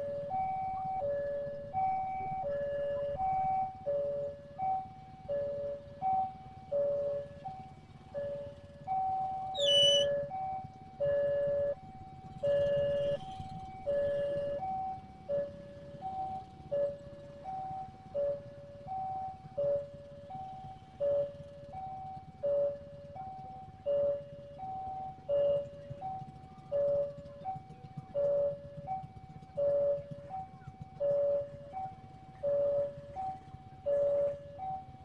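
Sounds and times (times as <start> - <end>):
low rumble of traffic: 0.0 - 35.0
two-tone level crossing alarm: 0.0 - 35.0
sharp high-pitched squeal: 9.6 - 10.1.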